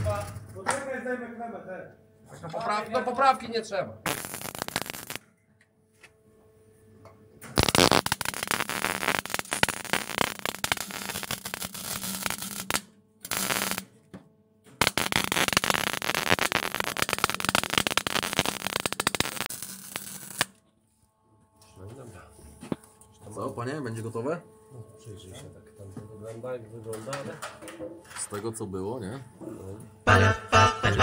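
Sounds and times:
arc welder crackling: 4.1 - 5.2, 7.5 - 13.9, 14.8 - 20.6.

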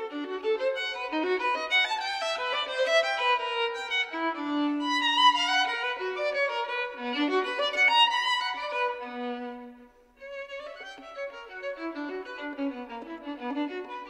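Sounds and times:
violin melody: 0.0 - 14.0.

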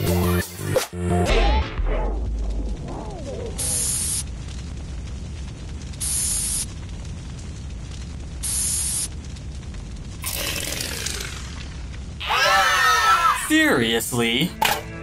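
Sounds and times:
steady low rumble: 1.1 - 12.2
aerosol spray hissing: 3.6 - 4.2, 8.4 - 9.1.

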